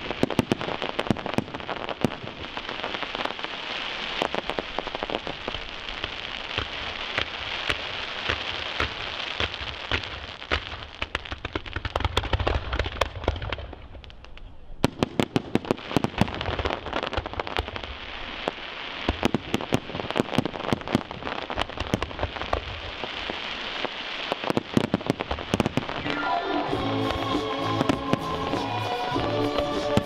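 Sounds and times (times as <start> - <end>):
fireworks bursting: 0.0 - 30.0
music: 26.0 - 30.0.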